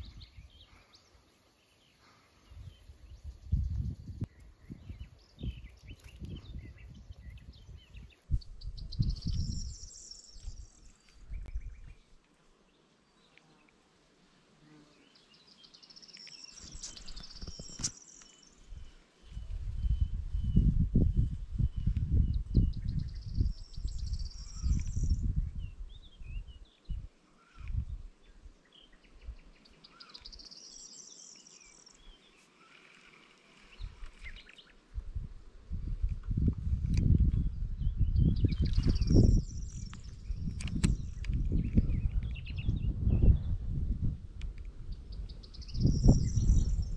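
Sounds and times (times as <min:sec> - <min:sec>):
songbirds singing: 0:00.0 - 0:13.8, 0:14.7 - 0:35.0, 0:35.8 - 0:46.9
songbirds chirping and singing: 0:15.0 - 0:32.7, 0:44.9 - 0:46.9
low rumbling on microphone: 0:18.7 - 0:27.1, 0:35.0 - 0:46.9.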